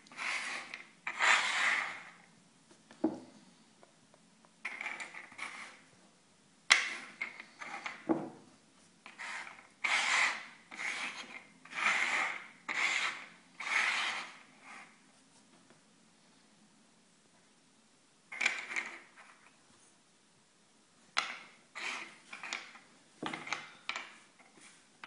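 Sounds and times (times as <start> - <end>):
objects scraping on wooden table: 0.0 - 2.2, 4.7 - 5.8, 6.8 - 8.4, 9.1 - 15.0, 21.3 - 24.8.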